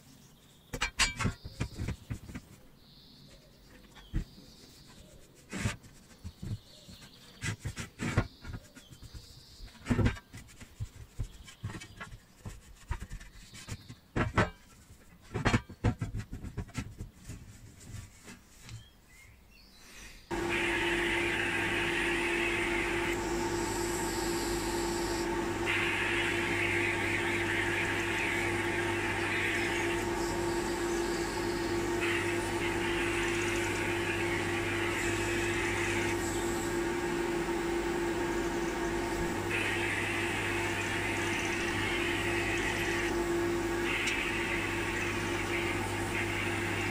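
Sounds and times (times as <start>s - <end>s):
spray gun air hissing: 20.3s - 37.2s
extractor fan hum: 20.3s - 46.9s.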